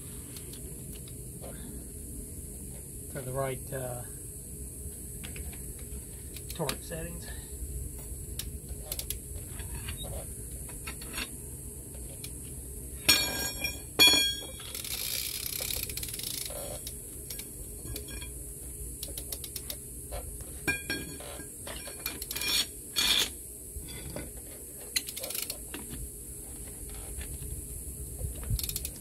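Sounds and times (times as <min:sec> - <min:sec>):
sharp metallic clanks: 0:13.1 - 0:14.7
steel tools clinking on lug nuts: 0:13.1 - 0:14.7
socket wrench ratcheting: 0:14.7 - 0:17.4, 0:25.0 - 0:25.6.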